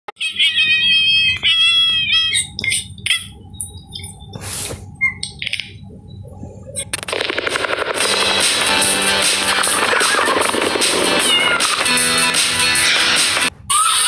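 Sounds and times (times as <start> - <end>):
cat meowing: 0.2 - 2.7, 11.2 - 11.8.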